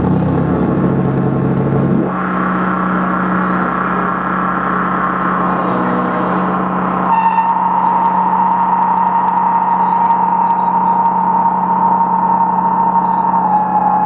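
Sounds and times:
high steady synth tone: 0:00.0 - 0:14.0
synthesizer noise drone: 0:00.0 - 0:14.0.

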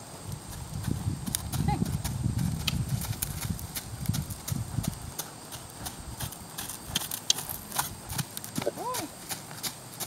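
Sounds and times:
hoofbeats on sand: 0:00.4 - 0:10.0.

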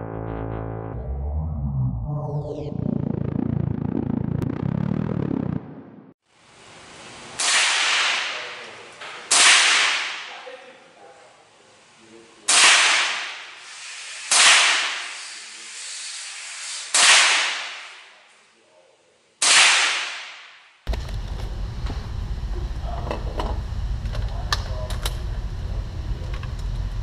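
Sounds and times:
rifle shots echoing indoors: 0:09.3 - 0:10.4, 0:19.4 - 0:20.7.

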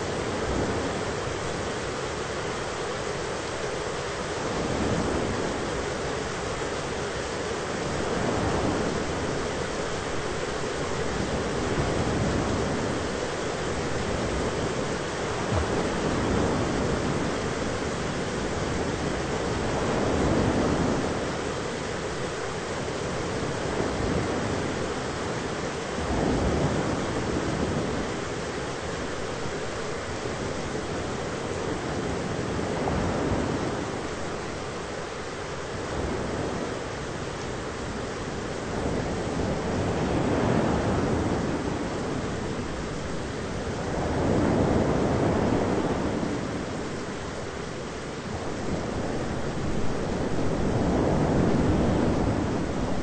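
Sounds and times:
thunderstorm rushing noise: 0:07.8 - 0:21.5, 0:22.1 - 0:34.2, 0:37.6 - 0:53.0.

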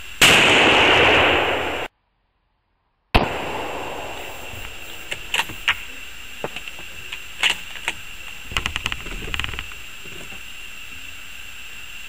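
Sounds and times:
rifle shot: 0:00.2 - 0:01.9, 0:03.2 - 0:05.8
light clicks and rattles: 0:04.6 - 0:10.4.

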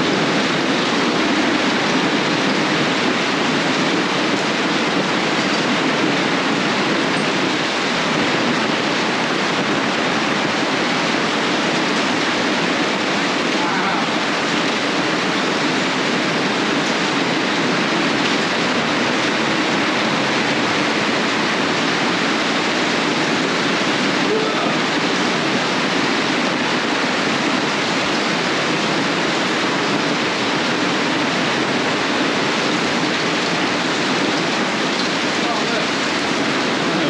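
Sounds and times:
torrential rain pouring: 0:00.0 - 0:37.0.

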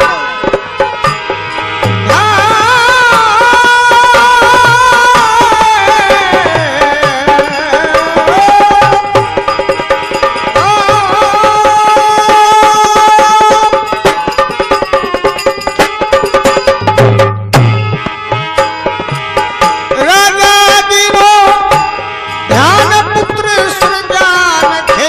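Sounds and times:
hand drum beat: 0:00.0 - 0:19.4
harmonium melody: 0:00.0 - 0:25.0.

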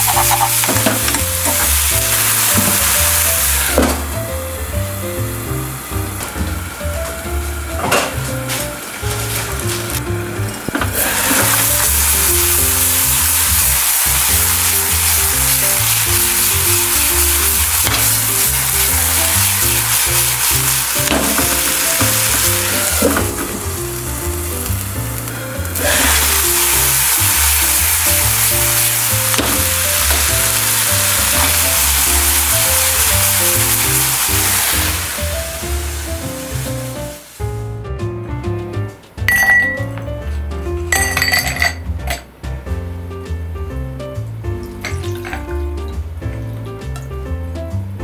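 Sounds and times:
food sizzling in a frying pan: 0:00.0 - 0:37.6
background music with bass line: 0:00.0 - 0:48.0.

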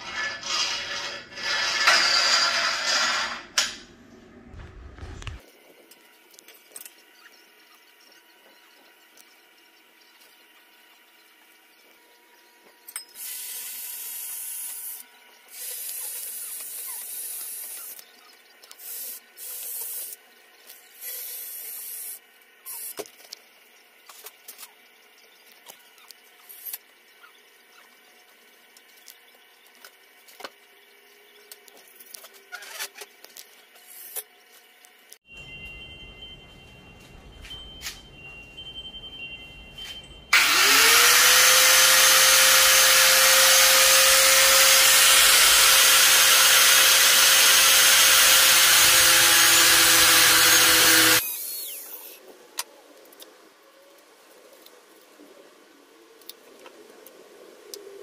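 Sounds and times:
power tool motor whining: 0:40.3 - 0:52.2.

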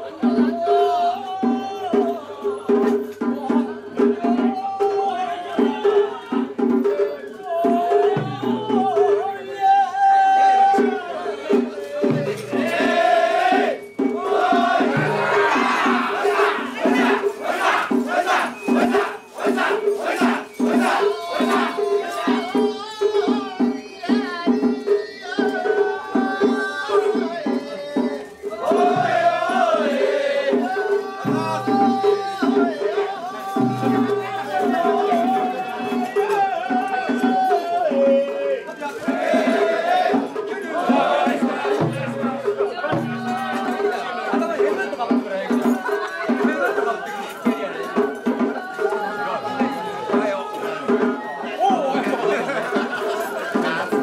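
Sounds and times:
drums beating steady rhythm: 0:00.0 - 0:54.0.

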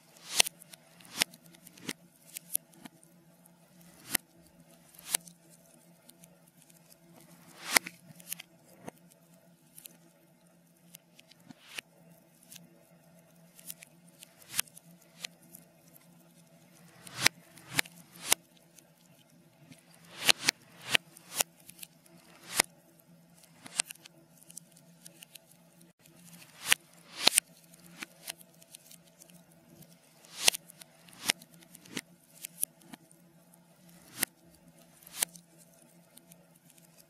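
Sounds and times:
reversed fire crackling: 0:16.7 - 0:18.4, 0:19.6 - 0:22.7.

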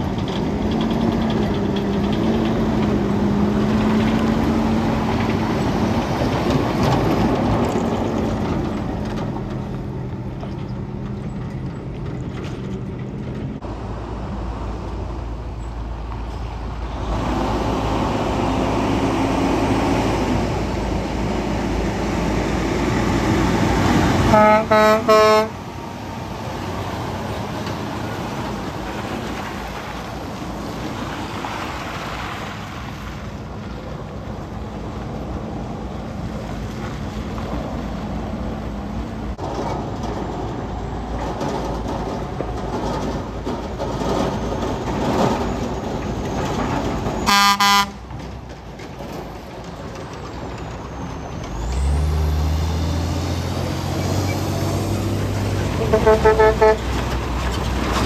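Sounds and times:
heavy trucks driving past: 0:00.0 - 0:58.0
truck horn blasts: 0:24.2 - 0:25.6, 0:47.2 - 0:48.0, 0:55.8 - 0:57.0.

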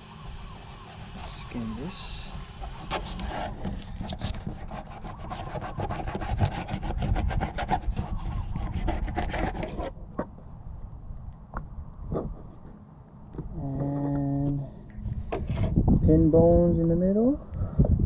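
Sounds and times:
knife scraping fish skin: 0:02.7 - 0:09.9.

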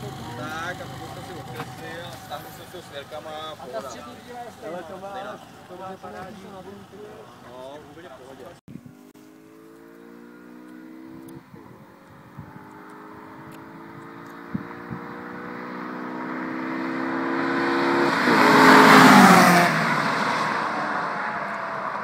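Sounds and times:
cars accelerating past: 0:09.2 - 0:22.0.

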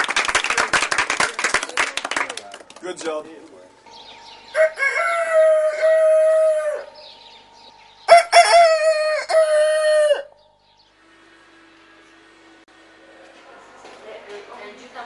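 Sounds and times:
rooster crowing: 0:04.5 - 0:07.2, 0:08.0 - 0:10.5.

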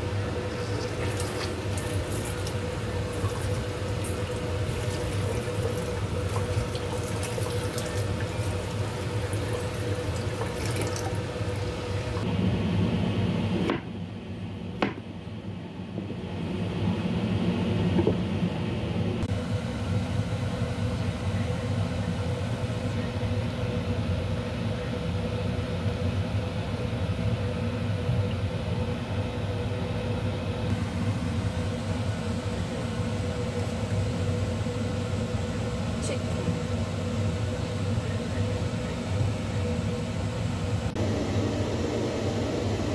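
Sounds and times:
steady hum: 0:00.0 - 0:42.9
tap water running into a bowl: 0:00.6 - 0:12.2
sharp knocks: 0:14.8 - 0:15.0.

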